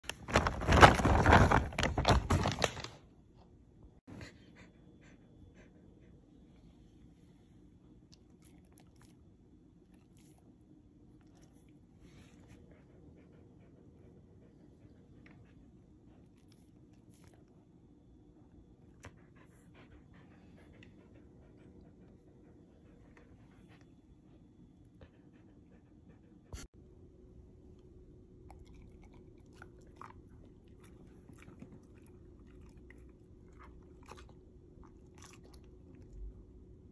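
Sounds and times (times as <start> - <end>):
dog panting: 4.1 - 6.5, 12.4 - 16.4, 18.9 - 26.7.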